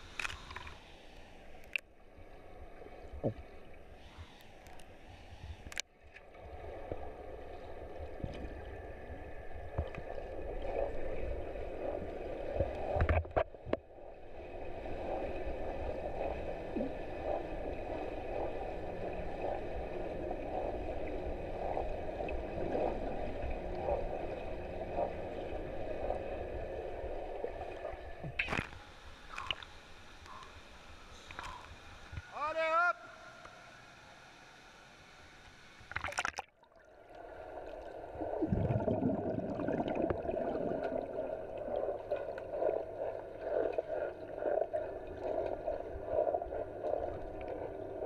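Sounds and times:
underwater rushing water: 0:35.8 - 0:43.4.

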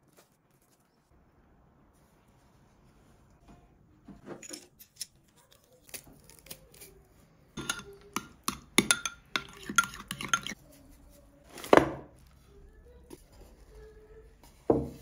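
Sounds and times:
dishes and glassware clinking: 0:07.6 - 0:10.6.

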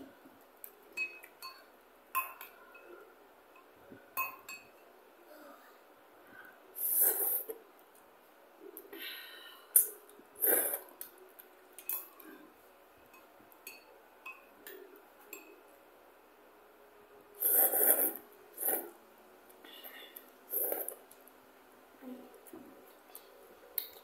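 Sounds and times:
noodles being slurped: 0:06.8 - 0:07.5, 0:09.8 - 0:11.0, 0:17.4 - 0:18.9, 0:20.5 - 0:21.0.

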